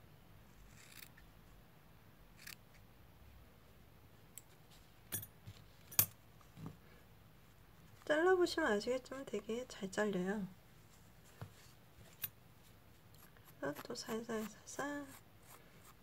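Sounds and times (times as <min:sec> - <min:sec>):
scissors snipping yarn: 0:13.1 - 0:16.0.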